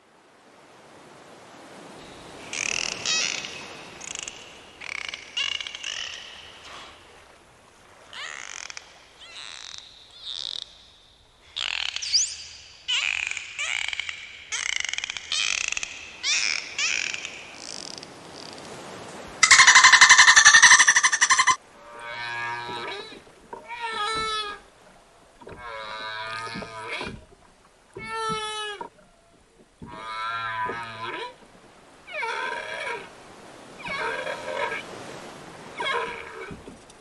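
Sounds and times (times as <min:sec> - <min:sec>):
dolphins chirping and whistling: 0:19.4 - 0:21.6.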